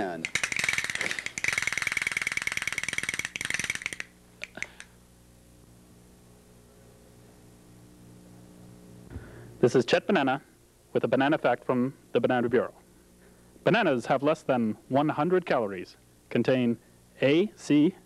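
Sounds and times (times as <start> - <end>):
fast rattling clatter: 0.0 - 4.1
faint low hum: 0.0 - 18.0.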